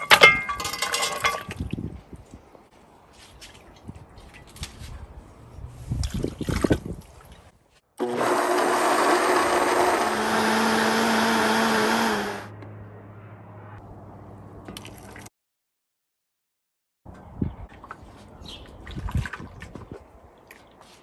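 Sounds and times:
blender running: 8.0 - 12.5.

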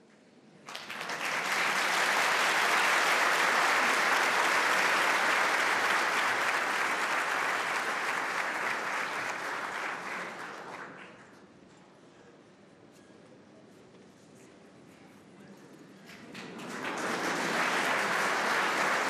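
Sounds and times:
audience applauding: 0.6 - 11.3, 16.1 - 19.0.

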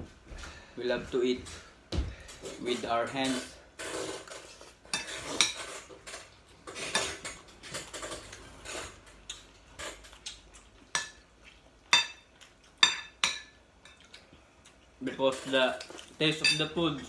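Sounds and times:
cutlery scraping on plates: 2.4 - 10.3.

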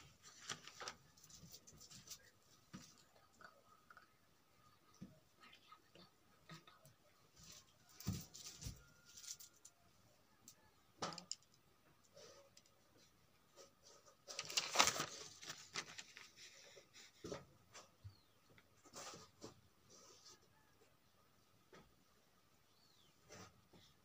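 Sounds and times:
page turning: 0.1 - 2.2, 14.3 - 16.6.

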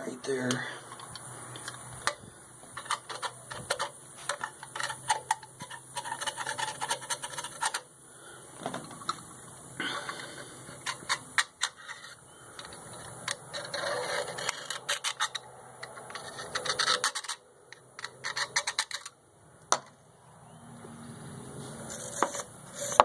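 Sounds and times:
gasket being scraped off metal: 12.9 - 17.4, 21.8 - 23.0.

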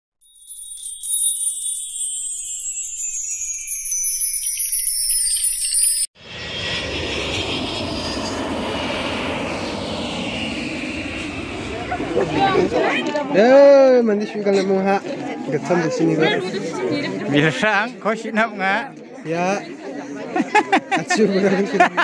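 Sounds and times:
sparkling descending chime: 0.2 - 6.2.

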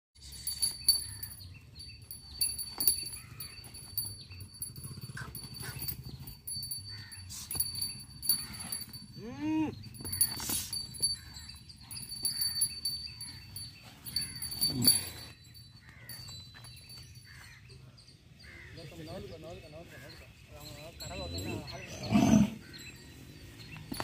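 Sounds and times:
young bull calling: 9.2 - 10.7.

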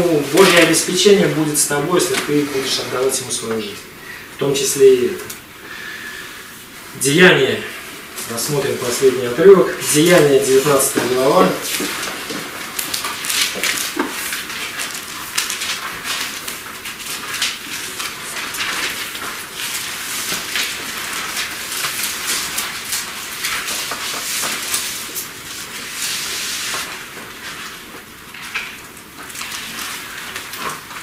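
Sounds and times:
book pages rustling: 0.0 - 3.8, 8.0 - 31.0.

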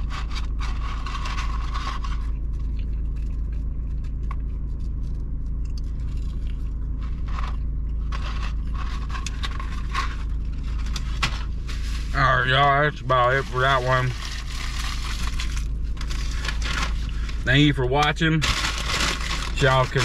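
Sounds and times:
air conditioning running: 0.0 - 20.0
car engine idling: 0.0 - 20.0
paper carton rustling: 13.1 - 17.5, 18.4 - 20.0.

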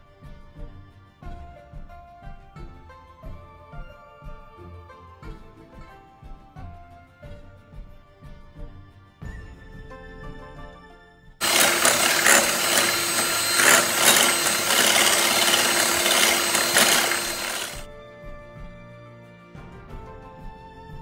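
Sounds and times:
soft background music: 0.0 - 11.4, 17.9 - 21.0
electric hand mixer whirring: 11.4 - 17.9.

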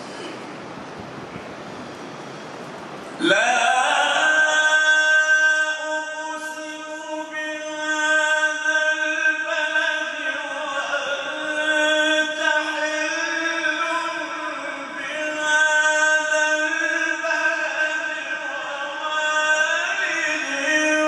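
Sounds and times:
man chanting melodically: 3.2 - 21.0.

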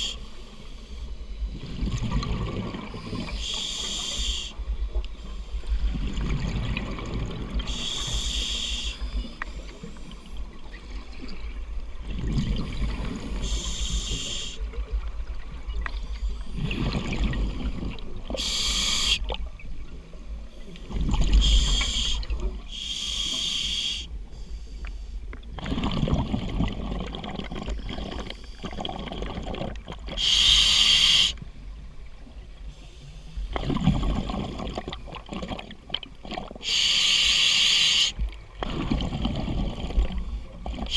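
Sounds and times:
exhaled bubbles rumbling: 1.5 - 3.4, 5.6 - 7.8, 10.6 - 13.5, 14.7 - 18.4, 20.8 - 22.7, 25.4 - 30.2, 33.5 - 36.6, 38.2 - 40.9
hissing regulator inhalations: 3.0 - 5.6, 7.7 - 10.4, 13.3 - 14.7, 18.4 - 19.3, 21.4 - 25.2, 30.2 - 31.4, 36.6 - 38.2.

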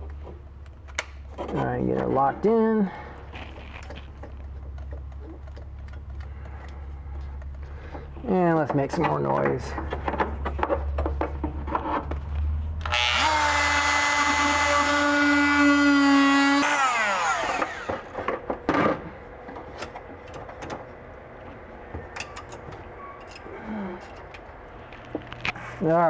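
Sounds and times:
rotary tool whining: 12.8 - 18.5.

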